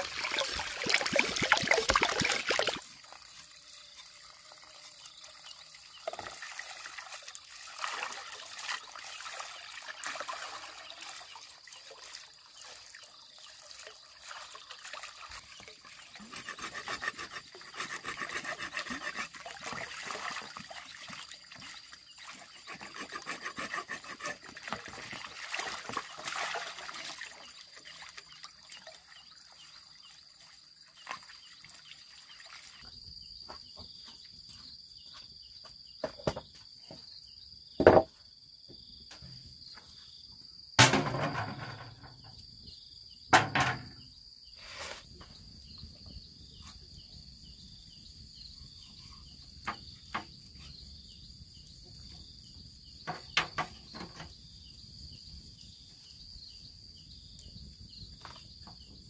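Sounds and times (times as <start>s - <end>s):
water from hose into basin: 0.0s - 32.9s, 40.8s - 42.4s, 43.3s - 44.0s, 44.6s - 45.8s, 52.8s - 54.5s
insects droning: 0.0s - 59.0s.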